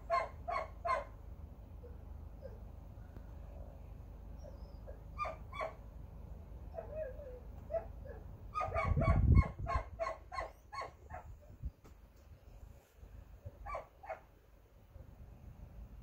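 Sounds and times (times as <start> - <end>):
dog yelping and whining: 4.4 - 5.8, 6.7 - 11.3, 13.6 - 14.2.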